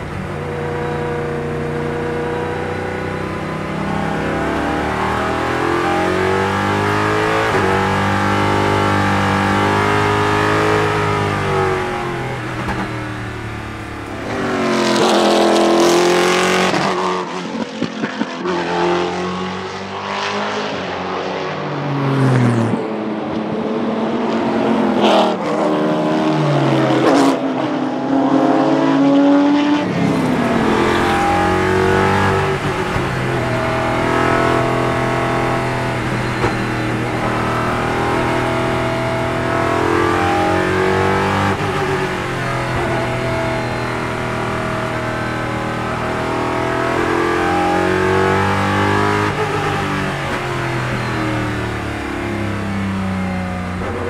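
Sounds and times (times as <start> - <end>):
race car engine revving: 0.0 - 54.0
race cars passing by: 0.0 - 54.0.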